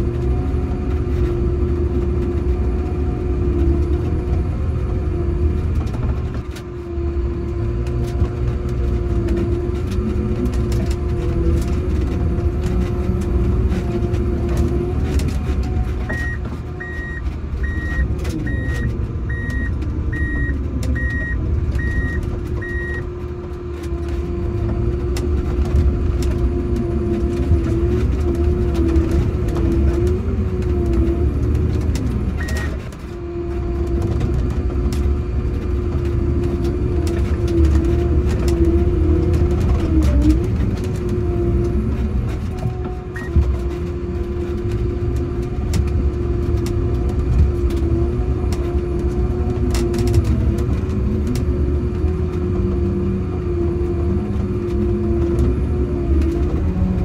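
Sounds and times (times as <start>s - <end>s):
snowcat engine rumble and whine: 0.0s - 57.0s
electronic warning beeper: 16.1s - 23.0s.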